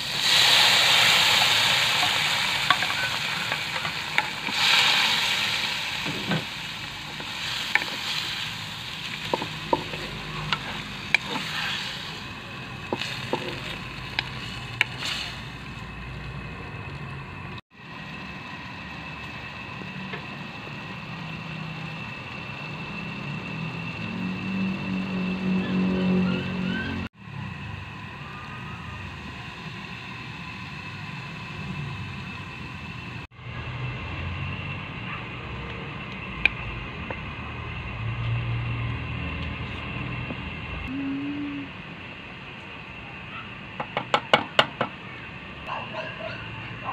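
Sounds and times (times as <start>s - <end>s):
squid sizzling in a wok: 0.0s - 25.6s, 27.2s - 40.8s
low hum: 0.8s - 43.7s.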